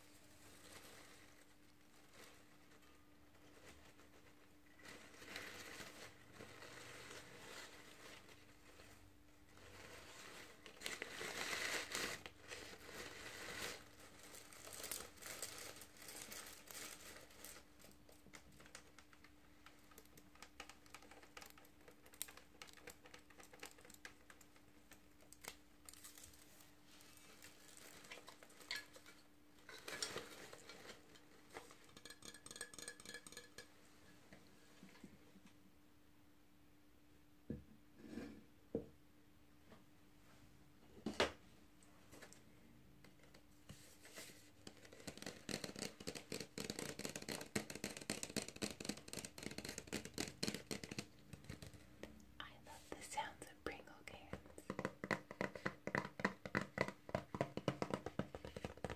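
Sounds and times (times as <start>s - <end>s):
fingers rustling artificial flowers: 0.0s - 32.1s, 43.6s - 58.9s
faint steady hum: 50.8s - 55.5s.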